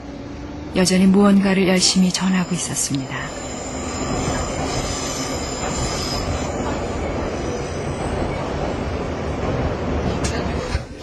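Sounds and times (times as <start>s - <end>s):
subway train rumble: 0.0s - 11.0s.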